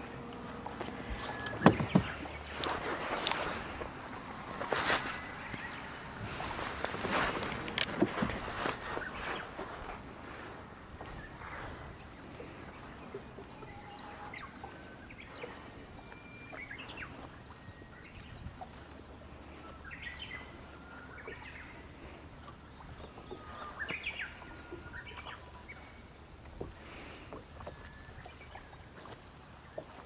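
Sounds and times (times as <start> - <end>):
low steady hum: 0.0 - 30.0
songbirds singing whistled phrases: 12.9 - 18.6, 22.6 - 29.9.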